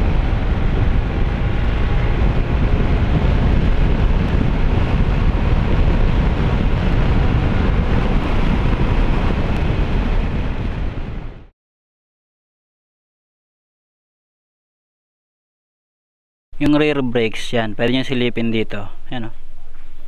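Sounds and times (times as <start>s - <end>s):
road and engine noise: 0.0s - 11.5s, 16.6s - 20.0s
wind rushing over microphone: 0.0s - 11.5s.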